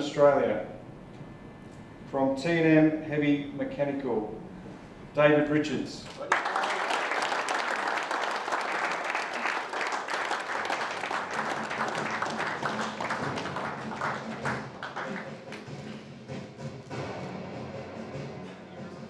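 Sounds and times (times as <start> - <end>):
audience applauding: 6.2 - 15.9.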